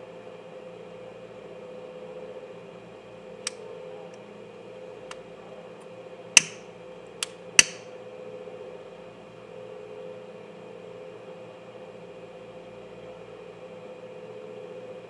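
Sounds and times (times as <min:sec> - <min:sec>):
steady background hum: 0:00.0 - 0:15.0
sharp clicks and taps: 0:06.4 - 0:06.6, 0:07.6 - 0:07.8.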